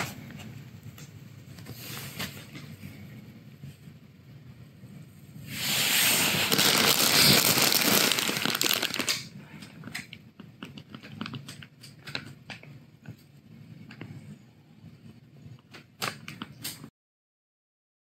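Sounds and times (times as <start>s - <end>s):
loud crinkling rustling: 6.0s - 9.3s.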